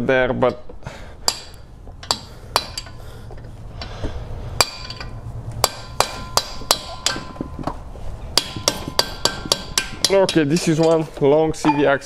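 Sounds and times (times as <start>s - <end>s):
hammer striking metal punch: 1.3s - 3.0s, 4.6s - 7.8s, 8.4s - 11.0s.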